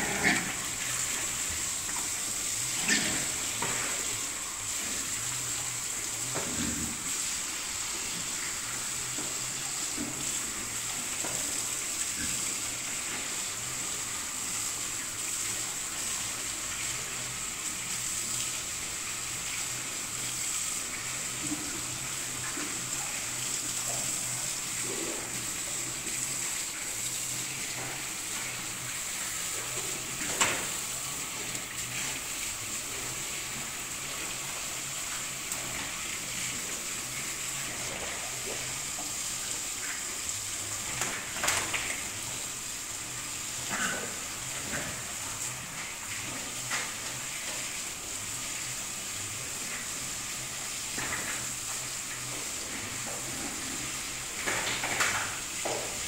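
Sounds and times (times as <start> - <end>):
piglets grunting: 0.0 - 0.8
water running: 0.0 - 56.0.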